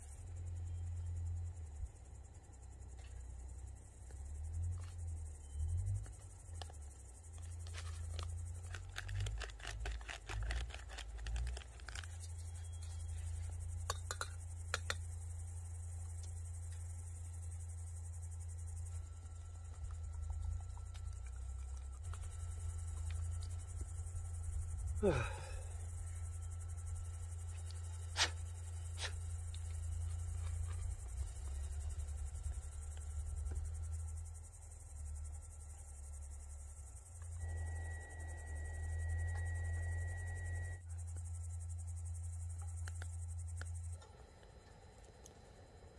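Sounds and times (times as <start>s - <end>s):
crickets chirping: 0.0s - 45.9s
low steady rumble: 0.0s - 45.9s
rustling handling noise: 7.3s - 13.6s.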